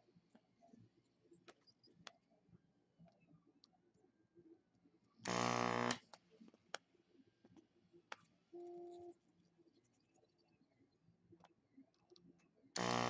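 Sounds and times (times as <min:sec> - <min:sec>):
quiet steady tone: 0:00.0 - 0:13.0
vacuum pump buzzing: 0:05.3 - 0:06.0, 0:12.8 - 0:13.0.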